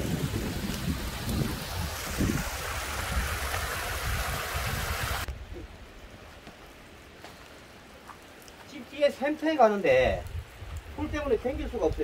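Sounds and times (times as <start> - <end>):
stream splashing over rocks: 0.0 - 5.3
wind buffeting microphone: 0.0 - 6.2, 9.9 - 12.0.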